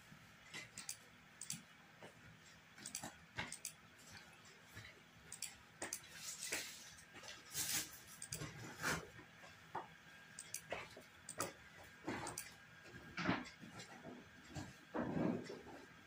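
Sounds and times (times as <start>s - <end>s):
mouse clicks: 0.7s - 1.6s, 10.4s - 10.7s.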